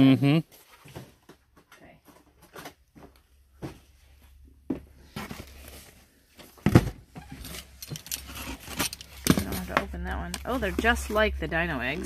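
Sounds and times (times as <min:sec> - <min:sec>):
cardboard packaging rustling: 0:05.0 - 0:12.0.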